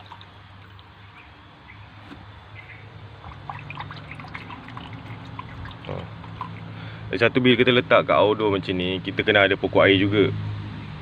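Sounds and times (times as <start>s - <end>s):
water trickling and splashing: 0.0s - 1.8s, 2.6s - 7.0s.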